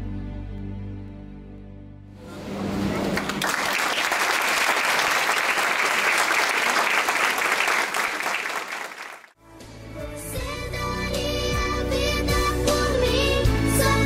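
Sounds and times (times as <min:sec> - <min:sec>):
audience applauding: 0:03.1 - 0:09.4.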